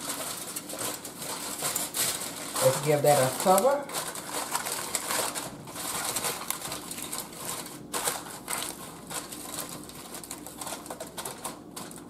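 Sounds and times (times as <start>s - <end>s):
aluminium foil crinkling: 0.0s - 12.0s.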